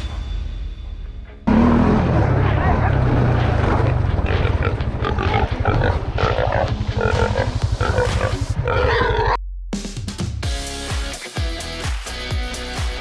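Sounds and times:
pig squealing and grunting: 2.8 - 9.4.

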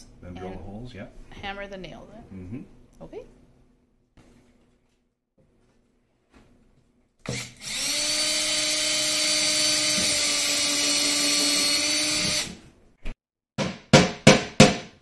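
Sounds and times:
cordless drill whining: 7.3 - 12.6.

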